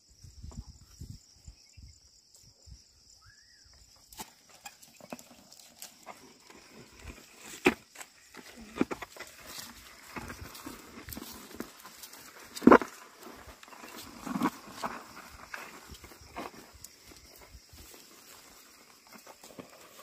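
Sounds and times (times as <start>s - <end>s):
oxen hooves plodding: 4.1s - 20.0s.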